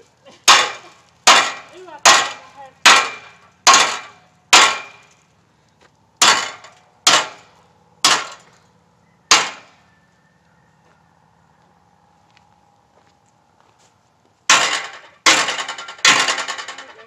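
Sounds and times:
hammer striking metal: 0.5 - 5.1, 6.2 - 8.5, 9.3 - 9.8, 14.5 - 17.0.

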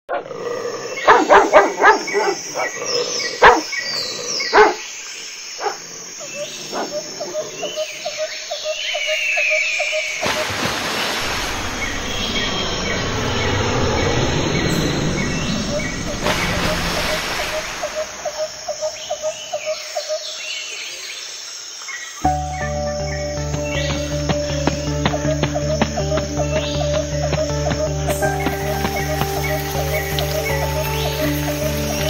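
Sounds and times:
steady rushing noise: 10.7 - 19.2.

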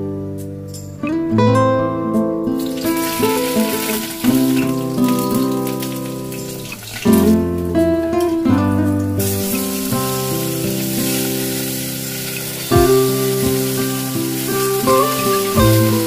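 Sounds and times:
background music sustained notes: 0.0 - 16.0
hot oil sizzling in a wok: 2.6 - 7.6, 9.2 - 16.0.

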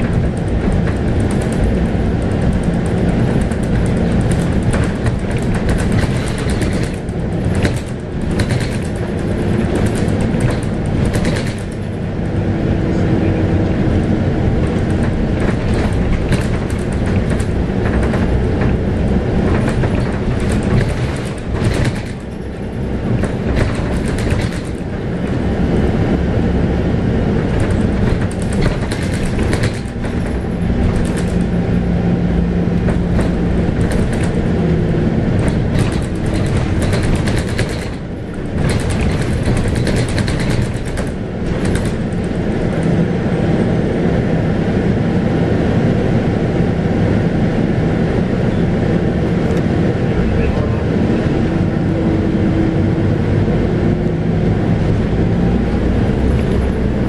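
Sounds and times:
body panels rattling: 0.0 - 12.3, 14.6 - 25.5, 27.4 - 31.8, 32.8 - 43.0
bus diesel engine running: 0.0 - 57.0.

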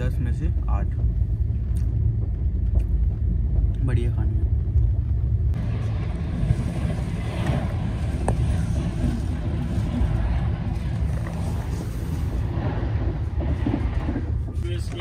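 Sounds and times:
passing train rushing rumble: 0.0 - 15.0
train coach low running rumble: 0.0 - 15.0.

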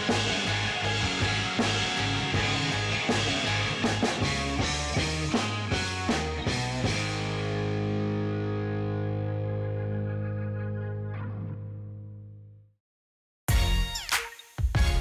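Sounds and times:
rock music with drums: 0.0 - 9.2, 13.5 - 15.0.

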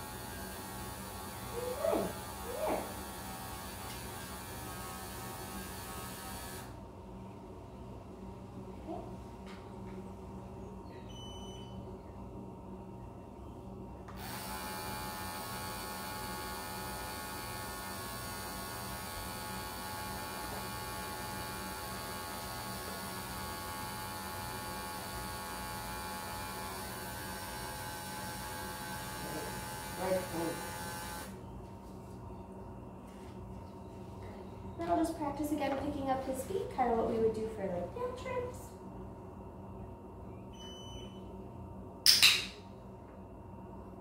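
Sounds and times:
electric clippers buzzing: 0.0 - 6.8, 14.1 - 31.4.

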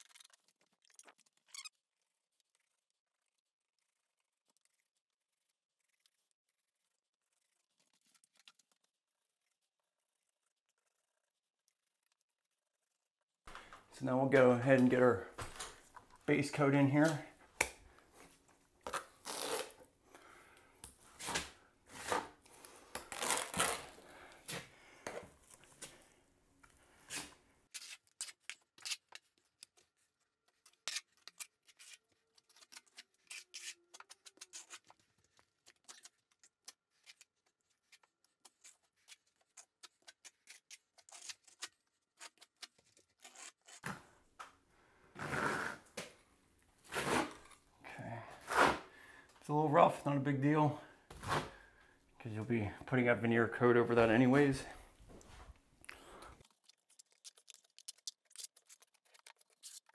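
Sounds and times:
trowel scraping plaster: 27.0 - 29.9, 30.5 - 44.2, 45.2 - 46.0, 46.8 - 47.6, 48.2 - 48.9, 56.2 - 59.9.

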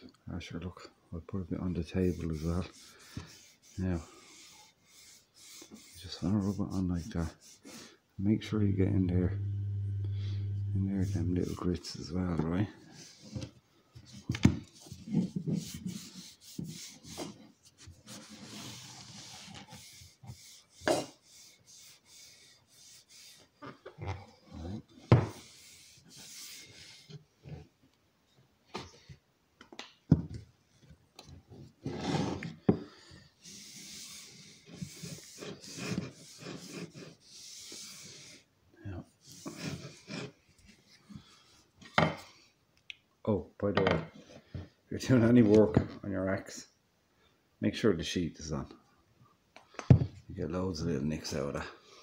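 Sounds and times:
cloth rubbing wood: 1.9 - 7.8, 8.7 - 12.2, 14.8 - 27.6, 33.4 - 38.4.

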